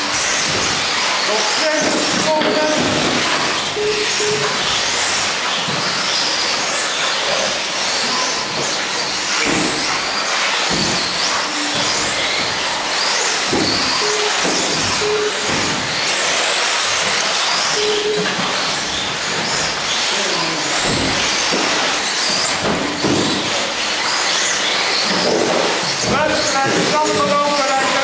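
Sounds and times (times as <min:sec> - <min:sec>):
rc car motors whining: 0:00.0 - 0:28.0
short beeps: 0:03.8 - 0:04.5, 0:14.0 - 0:14.4, 0:15.0 - 0:15.5, 0:17.7 - 0:18.4.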